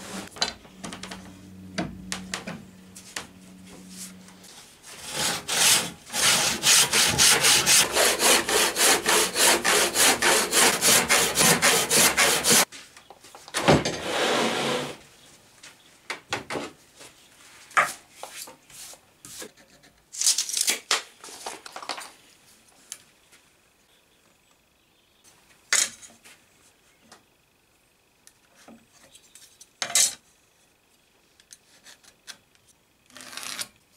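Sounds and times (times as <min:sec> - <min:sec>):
hand saw cutting wood: 0:04.8 - 0:12.7.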